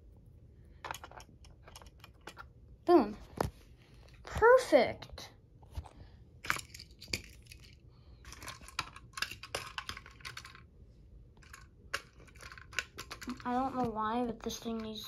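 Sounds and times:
plastic toy pieces clicking: 0.8s - 2.4s, 6.5s - 10.6s, 11.4s - 15.0s.

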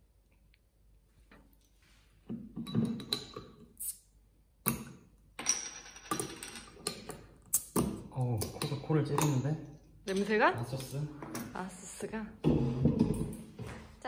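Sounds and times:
glass bottles clinking on table: 2.6s - 3.6s, 5.4s - 7.9s.

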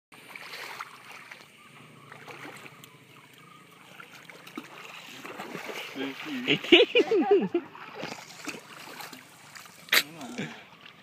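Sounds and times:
river water washing: 0.2s - 11.0s
faint ticks: 2.8s - 3.5s.

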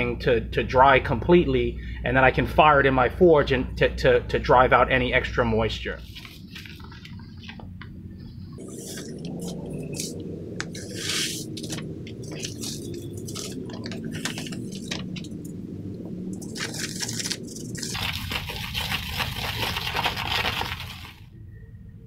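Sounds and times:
low rumble: 5.7s - 22.0s
paper rustling: 6.0s - 7.7s, 8.6s - 15.5s, 16.4s - 21.3s
wooden stick scraping dry mix: 8.6s - 15.3s, 16.4s - 21.2s
powder pouring hiss: 16.4s - 21.3s.

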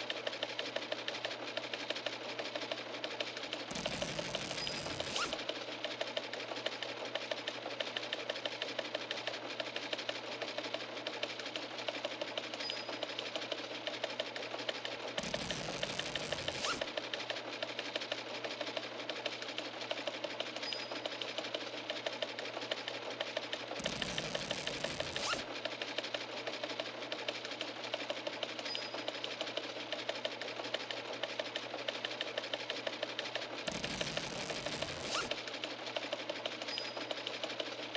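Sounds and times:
small machine clattering: 0.0s - 37.9s.

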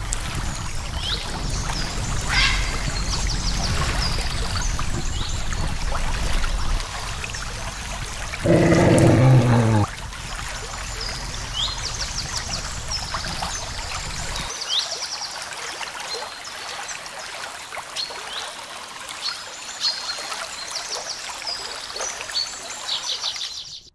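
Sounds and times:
low rumble: 0.0s - 14.5s
birds chirping and trilling: 1.0s - 5.5s, 8.4s - 9.9s.

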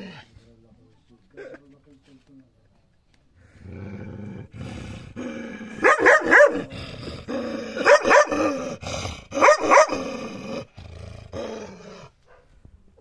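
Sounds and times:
dog growling: 3.5s - 12.2s
dog barking: 5.8s - 6.7s, 7.8s - 8.6s, 9.4s - 10.0s, 12.3s - 12.6s.

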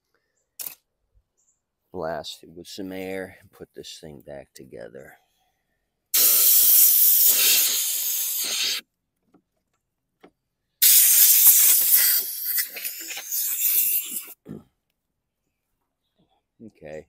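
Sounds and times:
compressed-air blowgun hissing: 6.2s - 8.8s, 10.8s - 14.4s.

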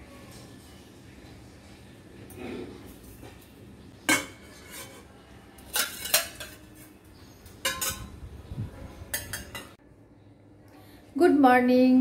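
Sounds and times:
steel bowls and plates clattering: 4.0s - 8.2s, 9.1s - 9.8s.

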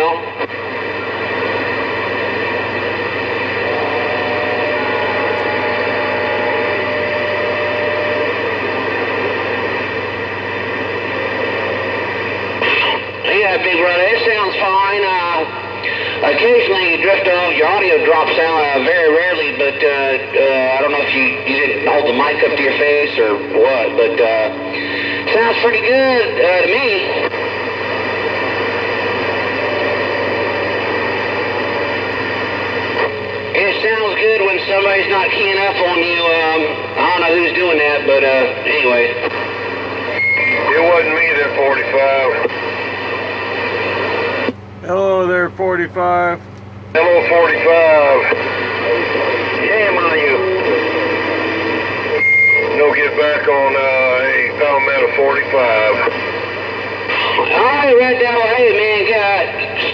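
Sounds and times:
radio static hiss: 0.0s - 59.9s
low hum: 0.3s - 16.6s
faint radio whistle: 40.1s - 42.0s, 48.8s - 53.5s.

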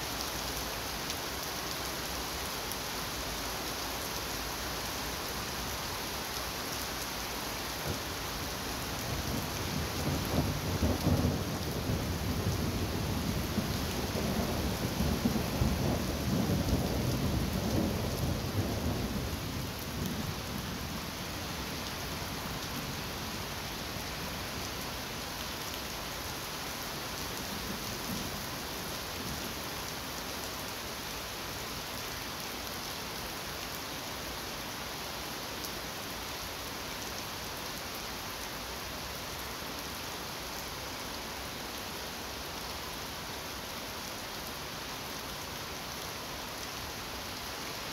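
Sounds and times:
steady rain: 0.0s - 47.9s.

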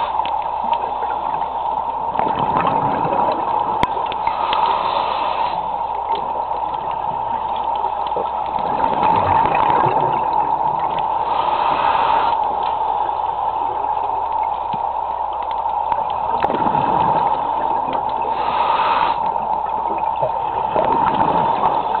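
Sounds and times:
constant hum: 0.0s - 22.0s
underwater water hiss: 4.1s - 6.1s, 10.6s - 20.0s.

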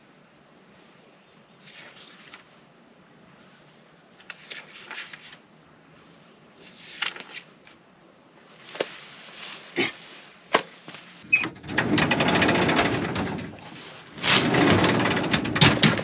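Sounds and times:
paper rustling: 1.7s - 2.5s, 4.2s - 5.4s, 6.6s - 7.8s
folding chair rustling and scraping: 8.6s - 16.0s.

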